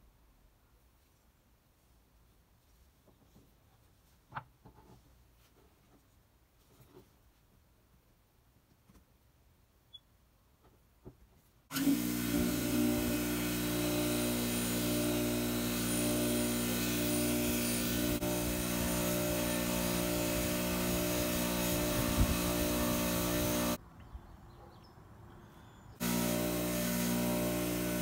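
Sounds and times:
bench grinder wire wheel scrubbing: 0:11.7 - 0:23.8, 0:26.0 - 0:28.0.

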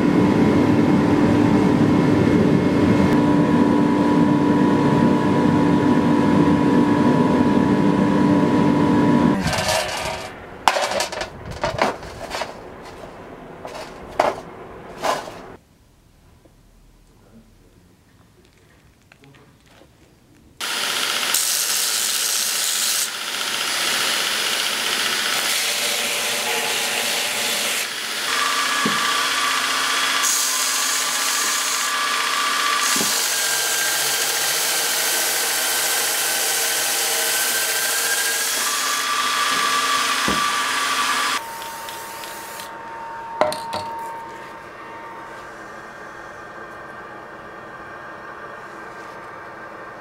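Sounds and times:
belt grinder grinding metal: 0:09.4 - 0:10.3, 0:20.6 - 0:42.7.

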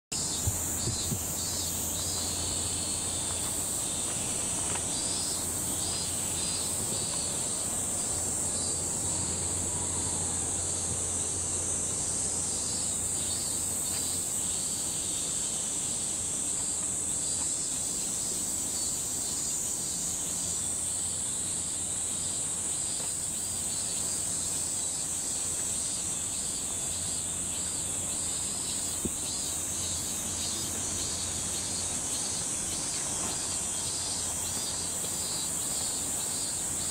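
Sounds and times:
cicadas droning: 0:00.0 - 0:36.9
pulsing insect calls: 0:00.1 - 0:36.9
distant city hum: 0:00.2 - 0:15.2.

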